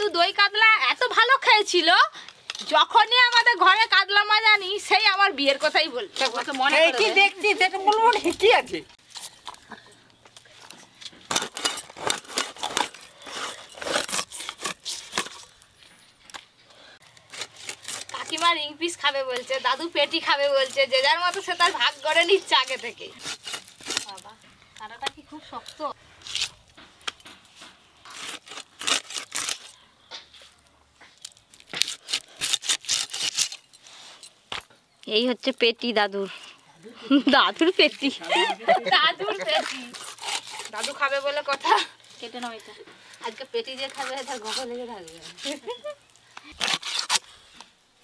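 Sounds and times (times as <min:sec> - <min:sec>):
fish scraping crunching on blade: 0:11.2 - 0:15.6, 0:17.0 - 0:18.5, 0:19.3 - 0:24.4, 0:28.0 - 0:29.8, 0:31.2 - 0:34.3, 0:39.3 - 0:41.7, 0:46.4 - 0:47.4.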